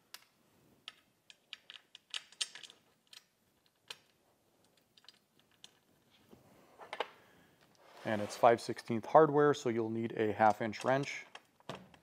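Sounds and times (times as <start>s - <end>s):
small metal parts clicking: 0.1s - 6.1s.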